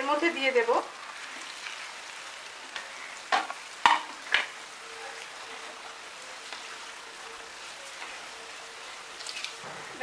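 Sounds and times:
leaves sizzling in a pan: 0.0s - 10.0s
wooden spatula knocking on pan: 3.3s - 4.5s.

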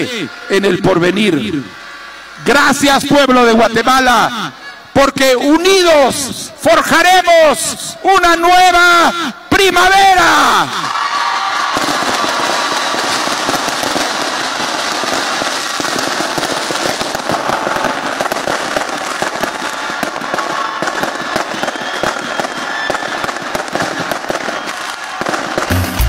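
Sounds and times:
fireworks crackling: 0.0s - 7.8s, 10.2s - 26.0s.

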